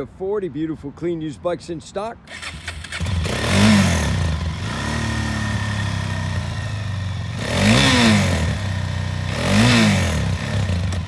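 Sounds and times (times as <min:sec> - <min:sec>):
quad bike engine idling and revving: 0:02.3 - 0:11.0.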